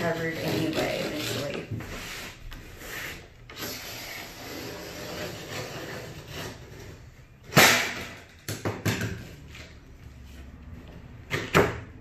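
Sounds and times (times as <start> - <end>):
blade scraping along caulk: 0.0 - 7.0.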